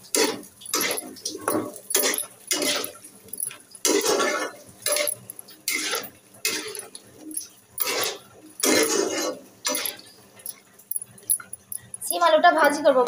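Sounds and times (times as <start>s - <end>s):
metal spatula scraping iron pan: 3.8s - 10.1s.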